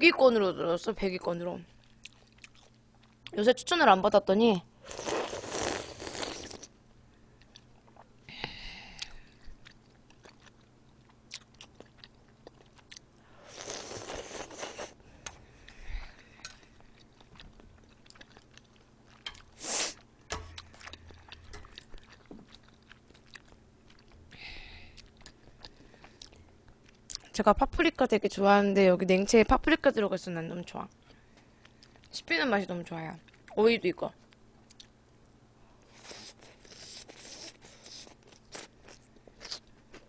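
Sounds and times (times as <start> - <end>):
soft chewing clicks: 1.8 - 3.4, 7.4 - 8.1, 9.0 - 13.2, 15.2 - 24.2, 25.0 - 27.4, 30.9 - 32.2, 34.2 - 35.4
slurping broth: 4.9 - 6.7, 13.5 - 15.0.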